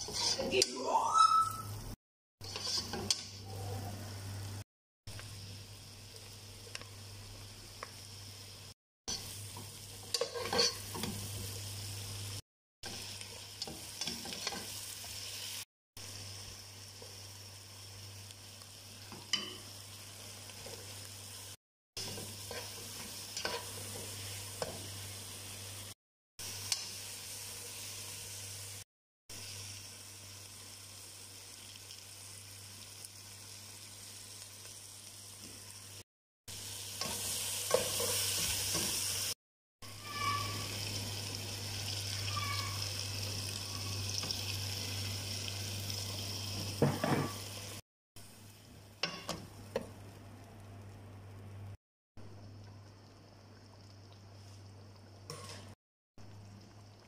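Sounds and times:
spatula scraping and knocking pan: 0.0s - 0.6s, 2.4s - 3.2s, 9.6s - 11.2s
onions and tomatoes sizzling in a pan: 0.0s - 1.0s, 2.4s - 52.6s, 53.2s - 57.0s.

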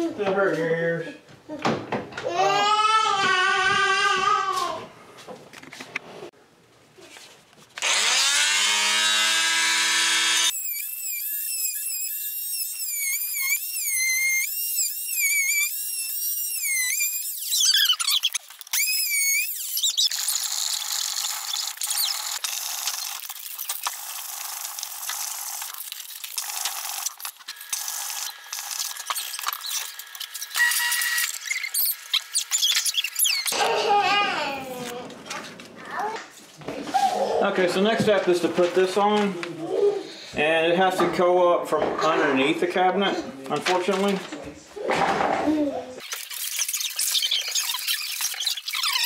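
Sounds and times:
multi-tool cutting wood: 7.8s - 34.0s.

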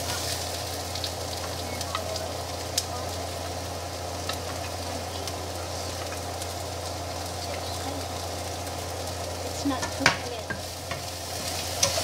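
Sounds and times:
onions sizzling in oil: 0.0s - 12.0s
steady low hum: 0.0s - 12.0s
wooden spatula clicking on pan: 9.8s - 11.1s.

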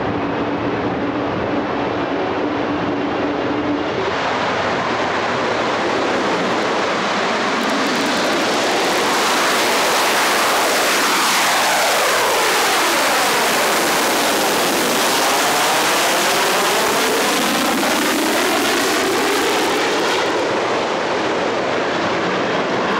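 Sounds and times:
jet blast rushing: 0.0s - 22.9s.

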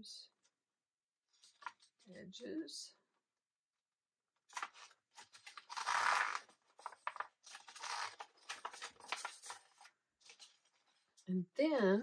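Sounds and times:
photo paper rustling and crackling: 1.3s - 2.1s, 4.4s - 11.3s.

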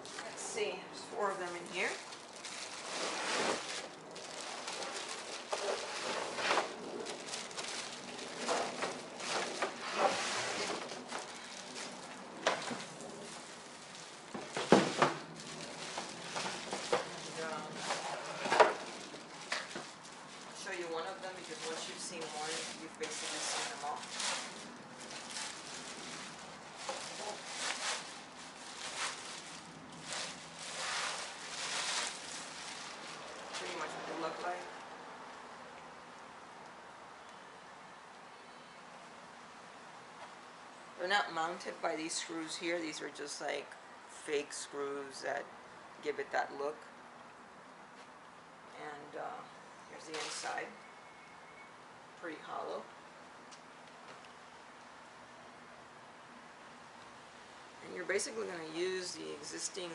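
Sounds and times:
plastic bags crinkling: 1.2s - 34.6s, 50.1s - 50.7s.

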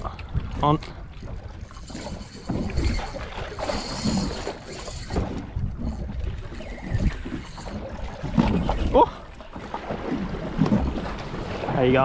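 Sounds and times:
waves slapping boat hull: 0.0s - 12.0s
wind buffeting microphone: 0.0s - 12.0s.

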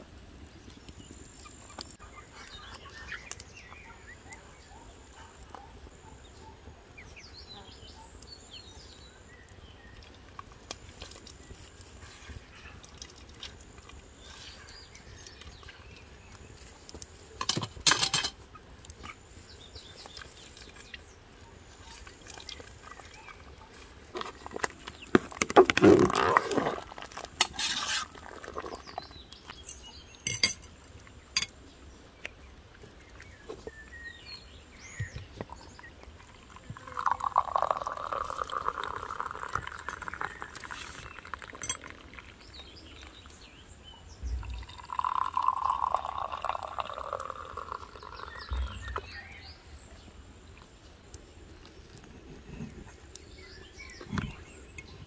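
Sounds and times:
metal utensils scraping a steel pot: 17.4s - 18.4s, 27.4s - 28.2s, 29.6s - 30.7s
juice pouring into a glass: 36.2s - 43.1s, 44.4s - 48.8s.

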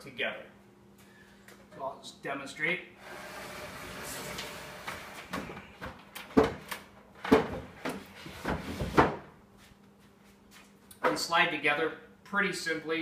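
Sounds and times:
wooden chair dragging scrape: 3.0s - 5.7s.

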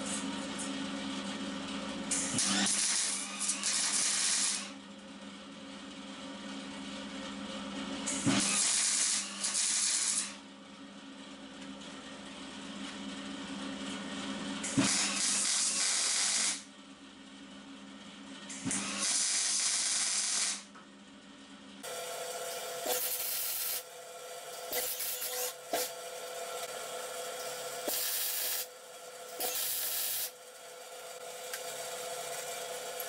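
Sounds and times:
welding crackling sizzle: 2.2s - 4.7s, 8.3s - 10.4s, 14.8s - 16.6s, 18.9s - 20.7s, 21.9s - 23.9s, 24.6s - 26.0s, 27.4s - 33.0s.

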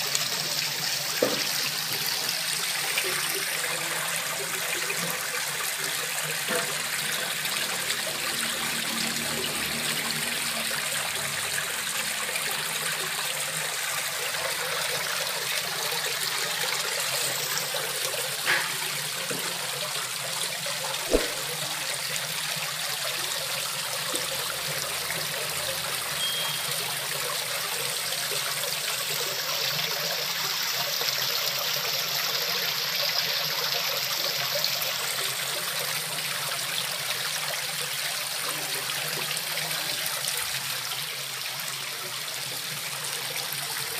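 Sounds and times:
water trickling into pond: 0.0s - 43.9s
sharp knock: 21.1s - 21.5s.

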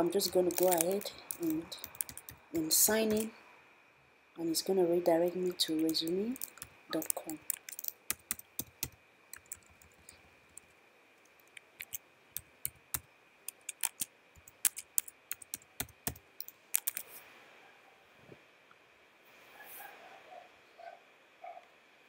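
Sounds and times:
keyboard key clicks: 0.5s - 2.4s, 5.8s - 10.1s, 11.4s - 17.0s.

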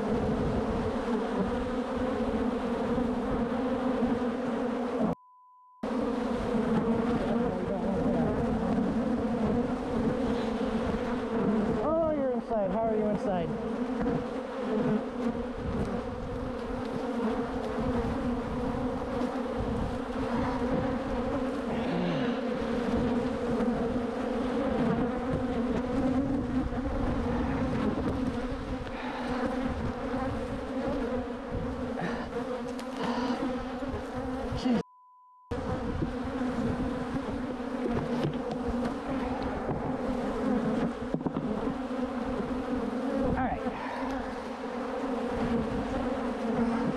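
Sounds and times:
swarm of bees buzzing: 0.0s - 5.2s, 5.8s - 34.8s, 35.5s - 46.9s
censor bleep: 5.2s - 5.8s, 34.8s - 35.5s.

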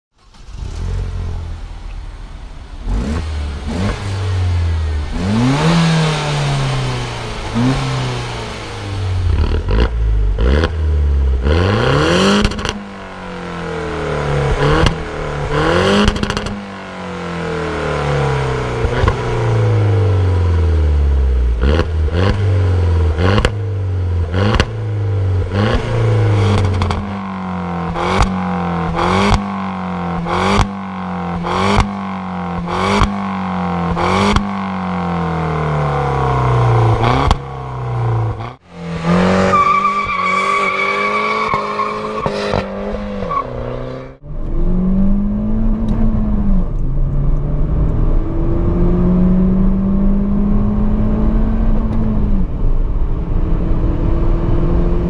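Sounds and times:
exhaust cracks: 0.1s - 20.2s, 30.2s - 43.0s
car engine revving: 0.1s - 55.0s.

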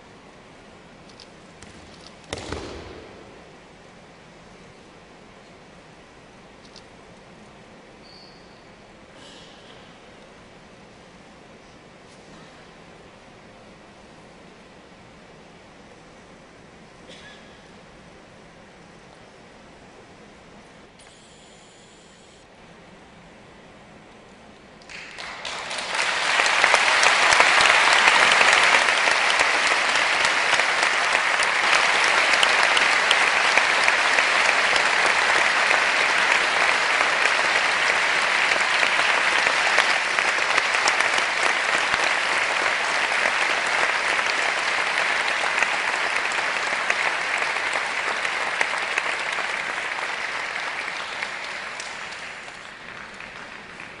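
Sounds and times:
audience applause: 24.9s - 54.0s.

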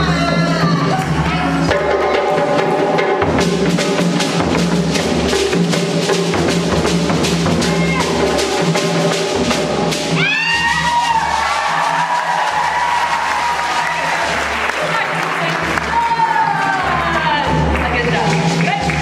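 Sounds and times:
drum ensemble playing: 0.0s - 19.0s
people whooping: 10.2s - 17.6s.

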